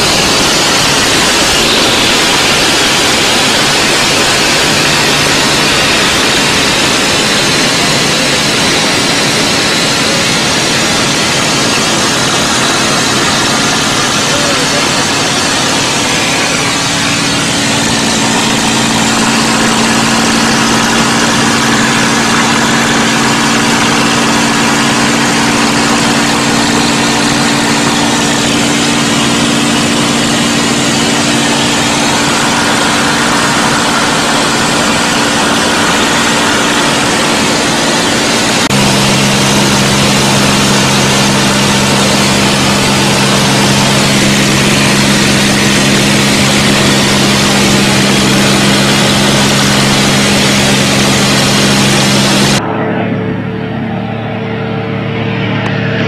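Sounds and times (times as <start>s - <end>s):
air rushing over canopy: 0.0s - 52.6s
aircraft engine running: 0.0s - 56.0s.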